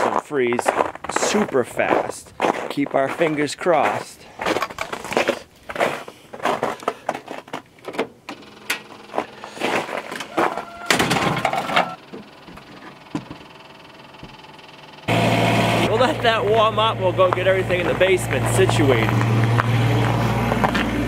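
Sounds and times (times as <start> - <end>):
crunching steps: 0.0 - 11.6, 17.2 - 21.0
clunks: 4.4 - 5.2, 6.4 - 14.8
tractor diesel engine starting: 8.2 - 21.0.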